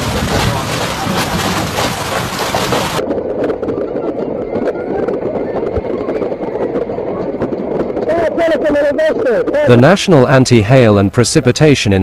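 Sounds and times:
hail and heavy rain pelting: 0.0 - 3.0
wind: 0.0 - 12.0.

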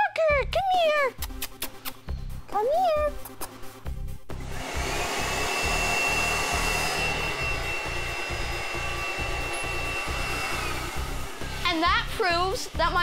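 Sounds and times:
vacuum motor blowing air: 4.4 - 12.8.

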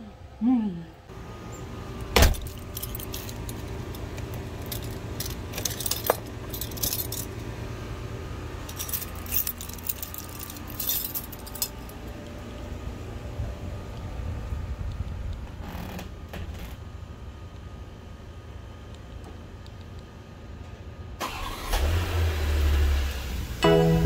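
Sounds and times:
steady low hum: 0.0 - 21.2
keys jangling on a ring: 2.3 - 7.4, 8.7 - 12.0.

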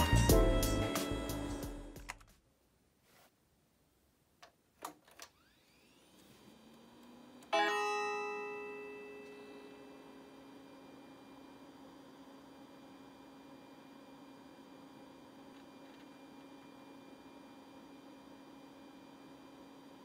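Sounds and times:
computer whine and hum: 0.0 - 2.4, 5.3 - 20.0
bright startup tone: 7.5 - 10.6.

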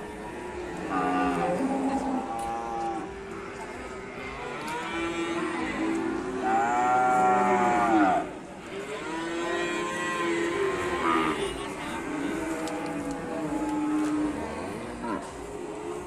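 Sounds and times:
cattle mooing: 9.0 - 15.3.

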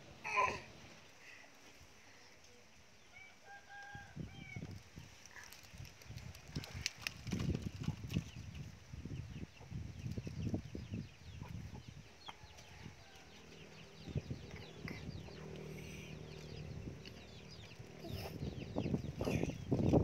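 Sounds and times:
chickens peeping: 7.4 - 20.0.

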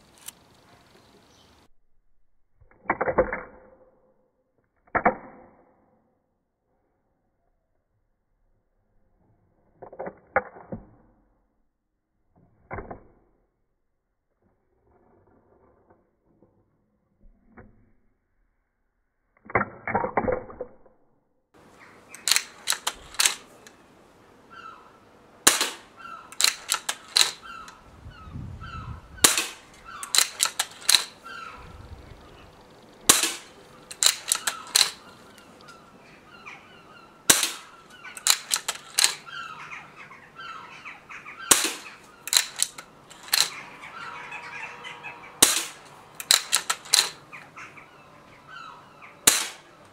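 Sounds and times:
air rifle shots: 22.0 - 23.8, 25.4 - 27.8, 28.6 - 36.4, 37.2 - 39.6, 41.2 - 47.6, 49.2 - 49.9
rifle barrel clacking open and shut: 22.1 - 23.8, 25.5 - 27.8, 29.2 - 31.6, 33.0 - 35.8, 37.3 - 39.5, 41.5 - 43.8, 45.4 - 47.4, 49.2 - 49.9.

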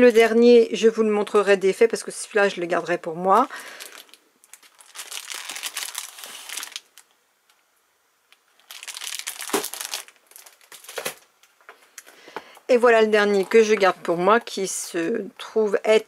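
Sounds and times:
cellophane crinkling: 3.2 - 7.2, 8.3 - 11.3.

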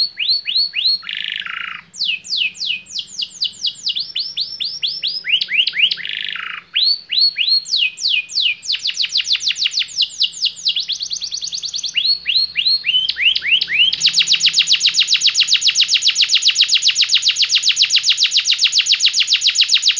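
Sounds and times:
canary singing: 0.0 - 19.9.

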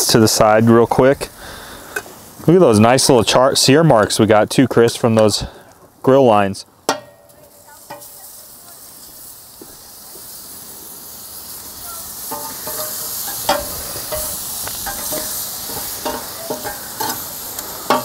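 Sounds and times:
steak sizzling on a grill: 0.0 - 18.0
crackles and pops: 7.3 - 18.0.

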